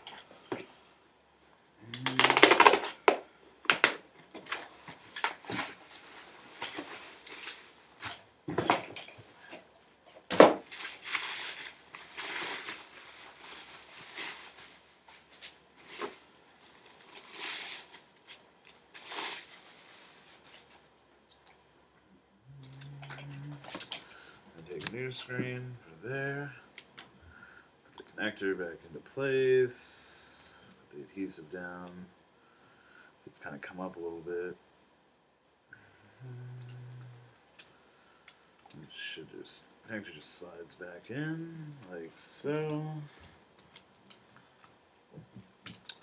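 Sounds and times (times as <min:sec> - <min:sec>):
packaging rustling: 0:10.4 - 0:20.8.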